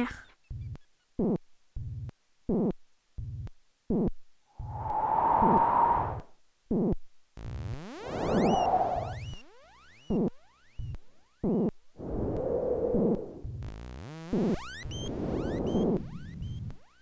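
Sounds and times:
synthesized hiss with steady tone: 0:00.0 - 0:17.0
rising synth sweeps: 0:04.6 - 0:06.2, 0:07.8 - 0:09.4, 0:12.0 - 0:16.4
short electronic blips: 0:07.7 - 0:09.4.

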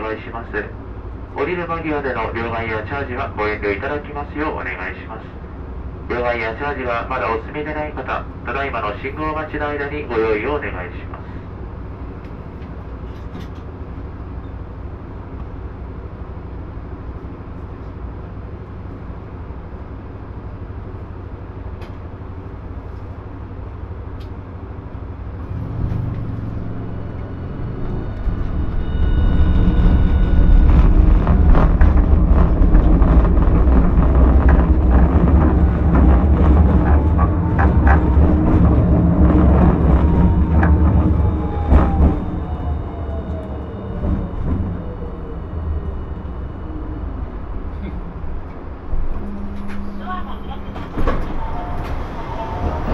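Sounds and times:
tram humming while standing: 0:00.0 - 0:52.9
tram motors and wheels rumbling: 0:00.0 - 0:52.9
rapid clicks of wheels on rails: 0:11.0 - 0:52.9
faint rising whine: 0:25.3 - 0:50.0.

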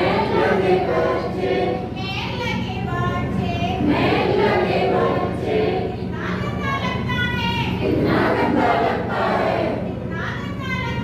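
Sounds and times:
group of people singing: 0:00.0 - 0:02.0, 0:03.8 - 0:06.3, 0:07.8 - 0:10.1.

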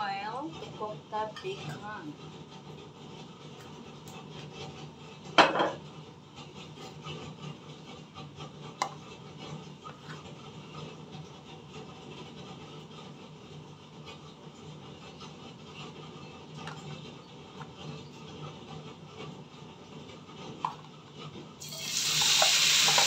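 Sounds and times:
kitchenware clattering: 0:05.4 - 0:05.8, 0:21.8 - 0:23.0.

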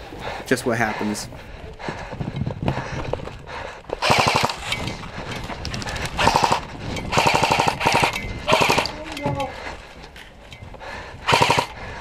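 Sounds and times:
airsoft gun full-auto bursts: 0:04.0 - 0:04.7, 0:06.2 - 0:08.9, 0:11.3 - 0:11.8.

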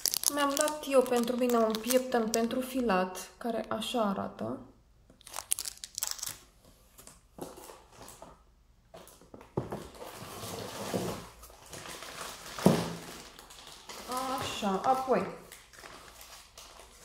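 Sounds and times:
packages rustling in a box: 0:00.0 - 0:02.3, 0:09.8 - 0:14.8, 0:15.5 - 0:17.0.

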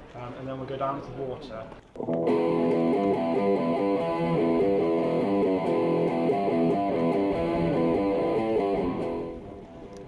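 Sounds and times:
guitar playing chords: 0:02.0 - 0:10.0.

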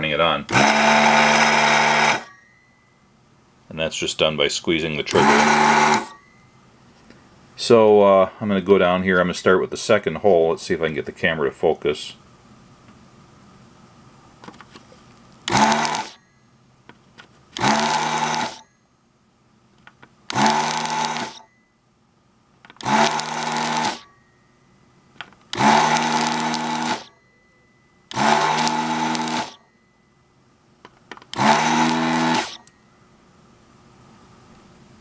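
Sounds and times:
vacuum pump motor hum: 0:00.4 - 0:02.3, 0:05.1 - 0:06.2, 0:15.4 - 0:16.2, 0:17.6 - 0:18.6, 0:20.3 - 0:21.4, 0:22.7 - 0:24.0, 0:25.5 - 0:27.1, 0:28.1 - 0:29.6, 0:31.3 - 0:32.6.

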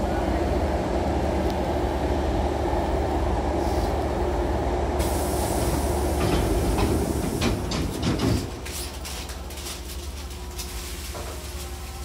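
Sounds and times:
stopped train humming: 0:00.0 - 0:12.0
air hiss: 0:05.0 - 0:07.7
train doors sliding shut: 0:05.0 - 0:12.0.

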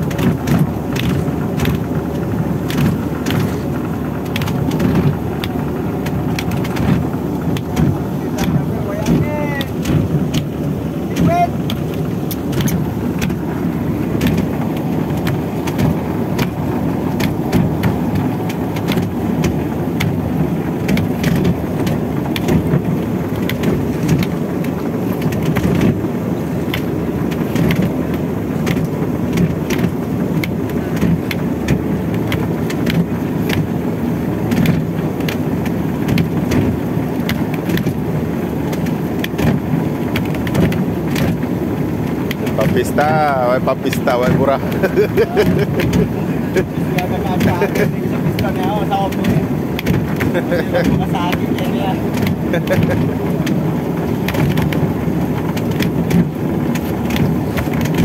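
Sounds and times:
boat engine and winch rumbling: 0:00.0 - 0:58.0
winch clicking: 0:43.9 - 0:58.0.

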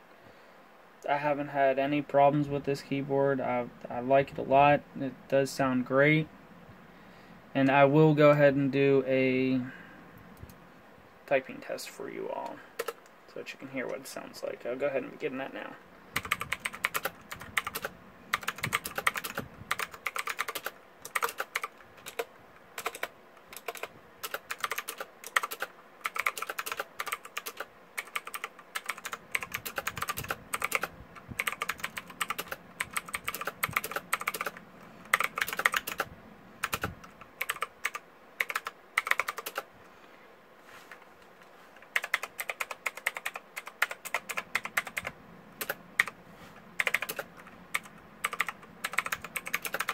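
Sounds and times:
mechanical keyboard typing: 0:12.8 - 0:13.0, 0:16.2 - 0:39.7, 0:41.9 - 0:46.2, 0:46.8 - 0:49.9.

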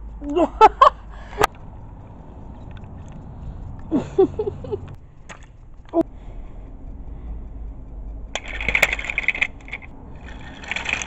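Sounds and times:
freight cars crashing: 0:08.4 - 0:11.0.

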